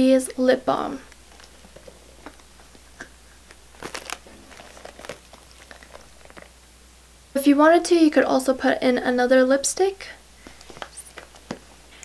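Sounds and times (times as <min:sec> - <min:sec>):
handbag rustling: 0:03.7 - 0:06.6.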